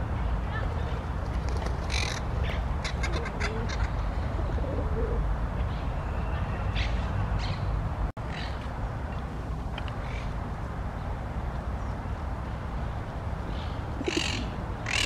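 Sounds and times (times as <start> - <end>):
low bird cooing: 2.8 - 5.2, 13.9 - 15.0.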